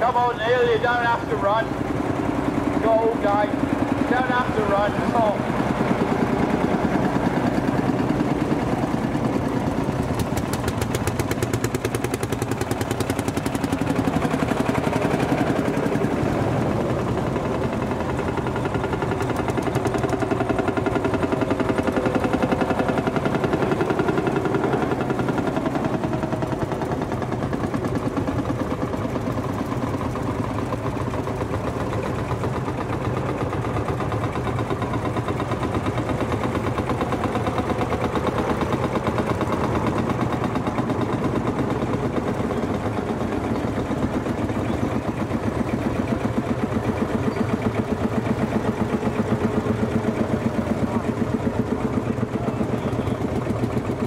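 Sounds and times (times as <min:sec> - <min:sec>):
tractor diesel engines thumping: 0:00.0 - 0:54.0.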